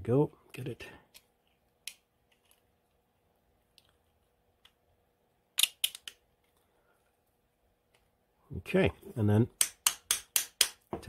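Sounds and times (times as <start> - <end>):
plastic parts clicking: 5.6 - 6.6.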